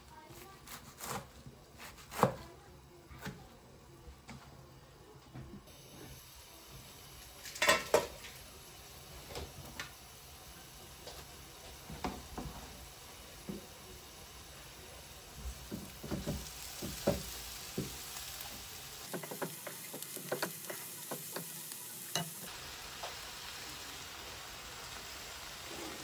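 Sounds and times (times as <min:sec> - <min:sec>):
knife chopping on plastic board: 0:00.7 - 0:02.4
food sizzling in a wok: 0:05.7 - 0:26.0
spatula knocking on pan: 0:15.7 - 0:18.0, 0:19.1 - 0:21.5.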